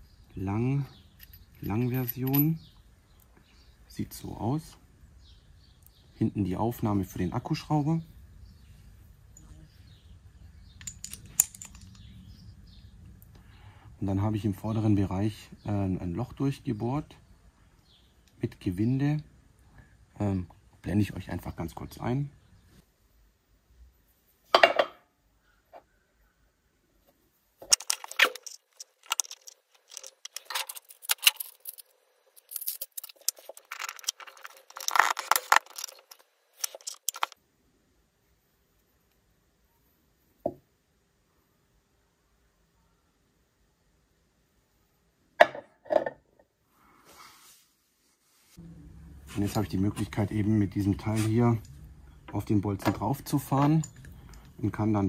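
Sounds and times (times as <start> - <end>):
faint birds chirping: 0.0 - 24.2, 25.1 - 45.3, 48.6 - 55.0
steel parts clinking and rattling: 0.9 - 2.7, 10.6 - 12.2, 27.6 - 37.4, 51.0 - 54.6.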